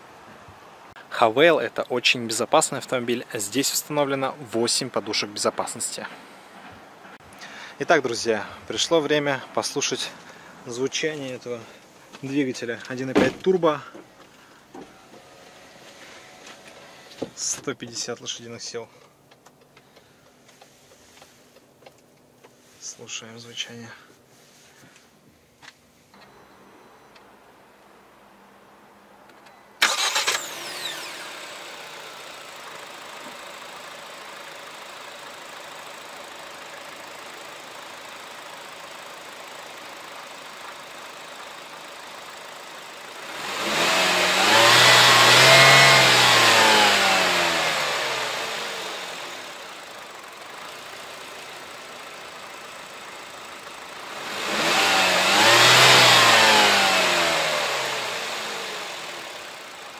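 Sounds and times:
car engine starting and idling: 0:29.3 - 0:59.9
car engine revving: 0:29.8 - 0:32.6, 0:43.2 - 0:49.7, 0:53.8 - 0:59.8.

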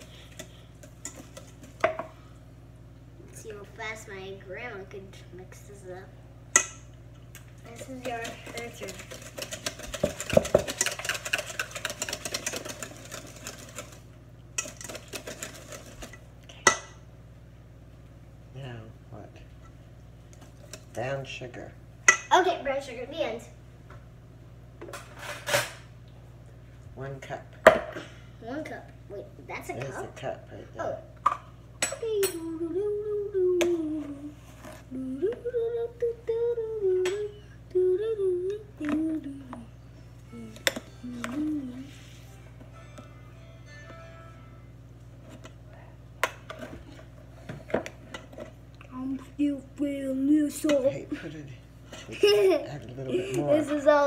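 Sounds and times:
spoon stirring in metal bowl: 0:00.3 - 0:02.0, 0:07.8 - 0:14.0
person humming: 0:32.3 - 0:42.2.

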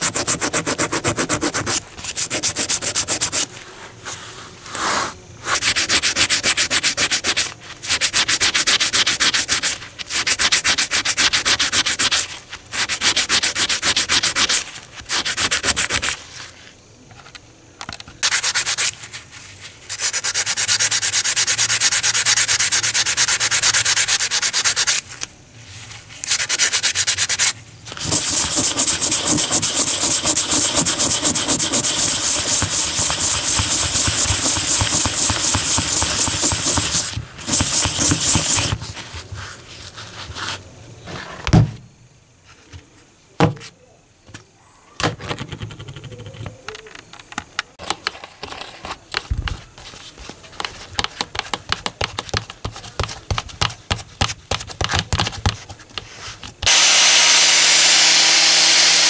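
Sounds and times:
metal nut rasping on sandpaper: 0:00.0 - 0:03.5, 0:05.5 - 0:16.2, 0:26.2 - 0:38.8.

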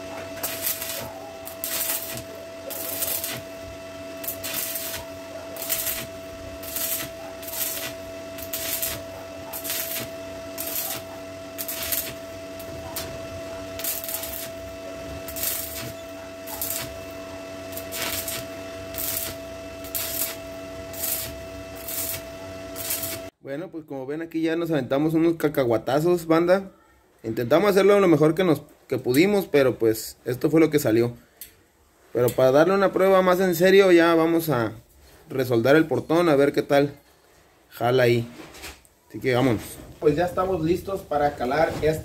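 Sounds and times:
welding arc crackling hiss: 0:00.0 - 0:23.3, 0:39.1 - 0:42.0.

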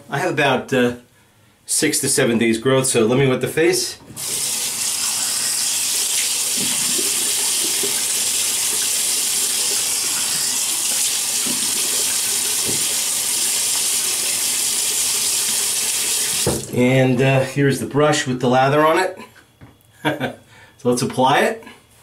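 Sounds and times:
tap running into sink: 0:06.1 - 0:14.4, 0:16.1 - 0:16.8.

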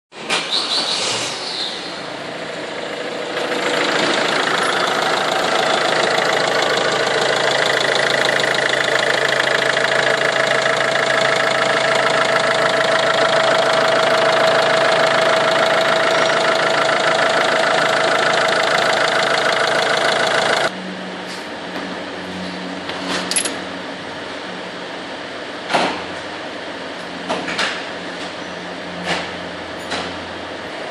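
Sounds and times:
diesel engine starting and idling: 0:00.5 - 0:20.8.

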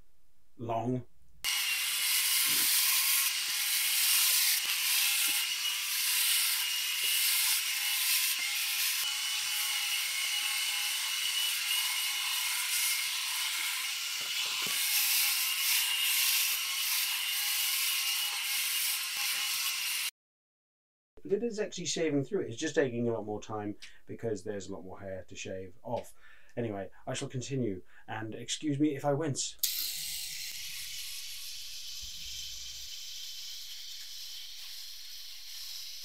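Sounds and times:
electric shaver whining: 0:01.4 - 0:20.1, 0:29.6 - 0:36.0.

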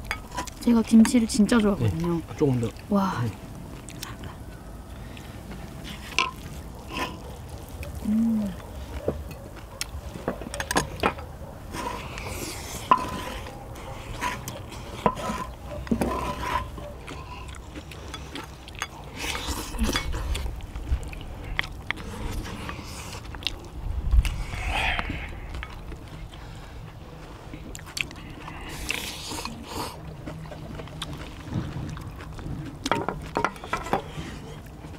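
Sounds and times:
utensils clinking against bowls and pan: 0:12.9 - 0:13.3.

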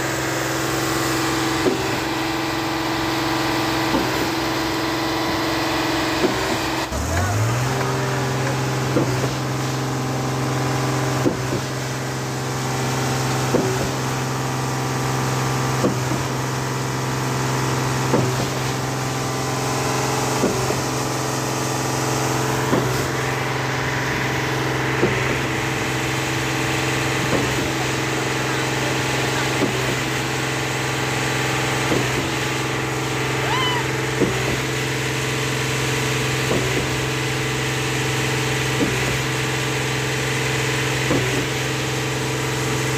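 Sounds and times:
diesel engine running: 0:00.0 - 0:42.9
wet concrete rushing down chute: 0:00.1 - 0:42.9
regular engine knock: 0:06.2 - 0:09.5, 0:11.1 - 0:12.0, 0:13.4 - 0:14.1, 0:15.7 - 0:16.5, 0:18.0 - 0:18.6, 0:20.3 - 0:20.9, 0:22.6 - 0:23.4, 0:24.9 - 0:30.3, 0:31.8 - 0:32.5, 0:34.1 - 0:34.9, 0:36.4 - 0:37.2, 0:38.6 - 0:39.3, 0:40.9 - 0:41.9.

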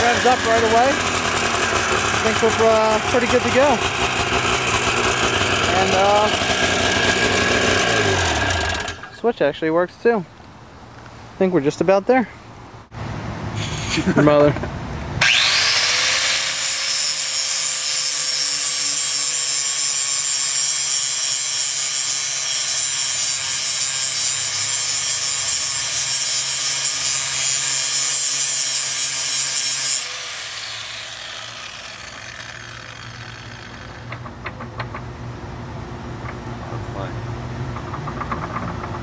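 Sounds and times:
high-speed motor spinning: 0:00.0 - 0:09.0, 0:15.2 - 0:17.8, 0:29.3 - 0:34.2.

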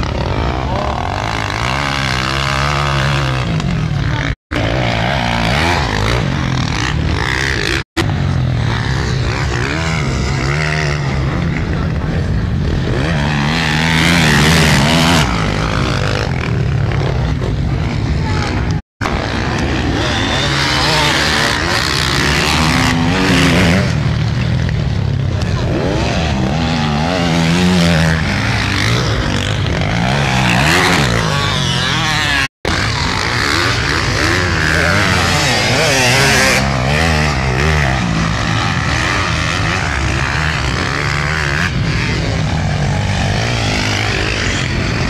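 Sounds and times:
motorcycle engines revving: 0:00.0 - 0:45.0.

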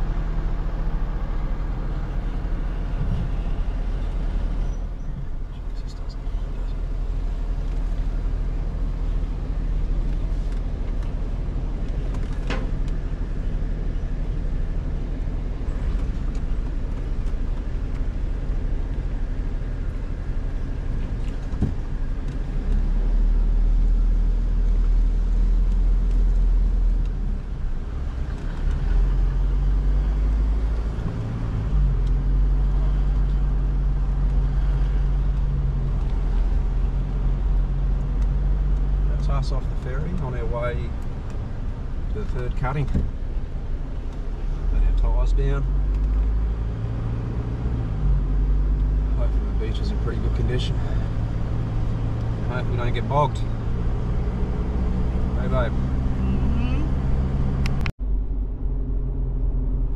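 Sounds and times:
engine hum: 0:00.0 - 0:59.9
vehicle engine rumble: 0:00.0 - 0:59.9.

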